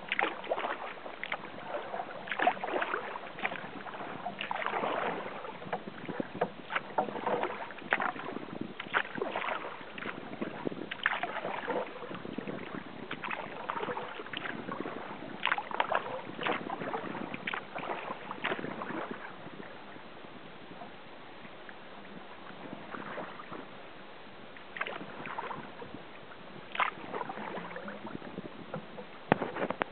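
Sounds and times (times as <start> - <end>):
paddle splashes and drips: 0.0 - 29.9.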